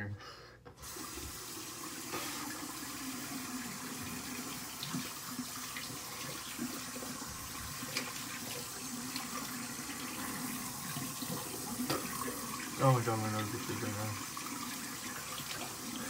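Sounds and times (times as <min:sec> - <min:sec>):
tap water running into sink: 0:00.8 - 0:16.0
small knocks and splashes: 0:11.3 - 0:12.3.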